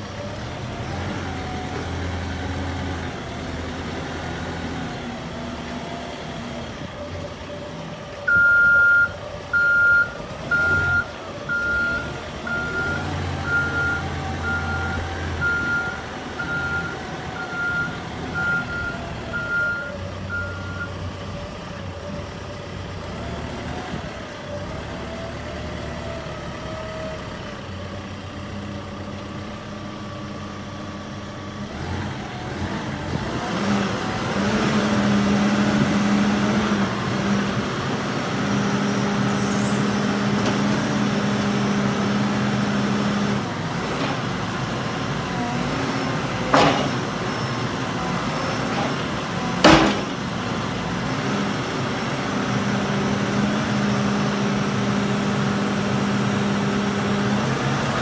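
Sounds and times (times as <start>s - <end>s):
diesel engine running: 0.0s - 58.0s
sharp knocks: 46.5s - 47.0s, 49.6s - 50.2s.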